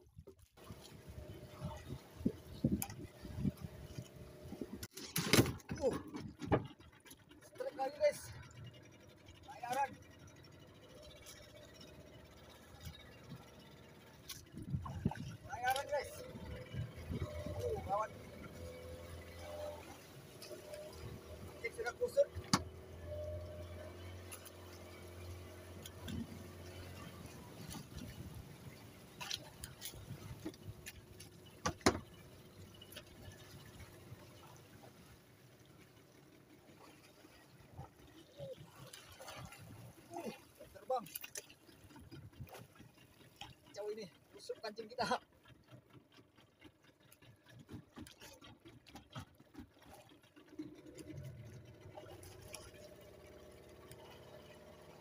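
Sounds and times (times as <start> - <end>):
faint low rumble: 6.0 - 48.4
fishing line ticking and tapping: 41.0 - 54.6.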